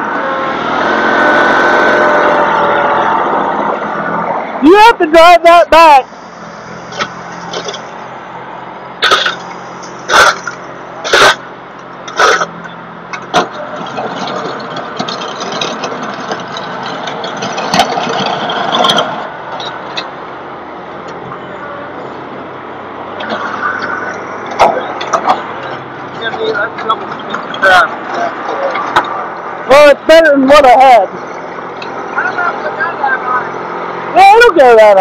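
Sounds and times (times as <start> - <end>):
tractor diesel engine running: 5.2 - 34.3
loud short sharp noises: 9.0 - 12.6.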